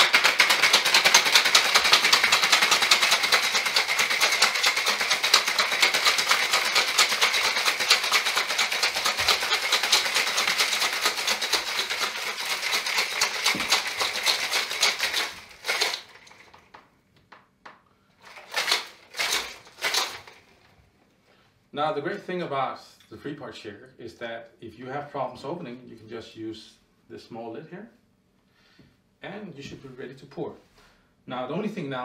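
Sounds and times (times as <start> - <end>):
cocktail shaker rattling: 0.0 - 16.6, 18.2 - 20.5.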